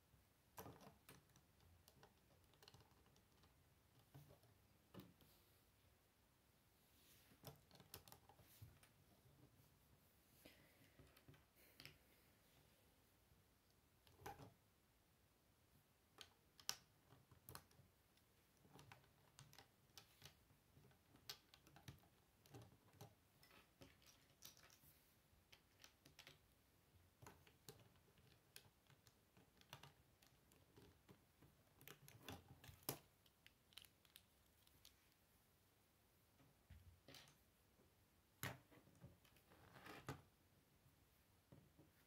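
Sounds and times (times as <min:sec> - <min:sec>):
plastic bricks clicking: 0:18.6 - 0:24.8, 0:25.5 - 0:26.4.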